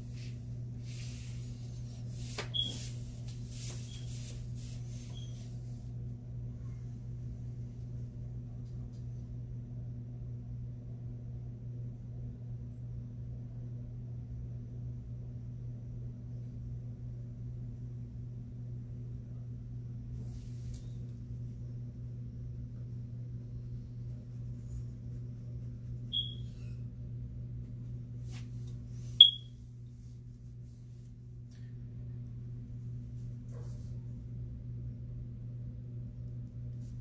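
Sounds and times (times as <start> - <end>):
low electrical hum: 0.0 - 37.0
high-pitched electronic chirps: 26.1 - 26.5, 29.2 - 29.5.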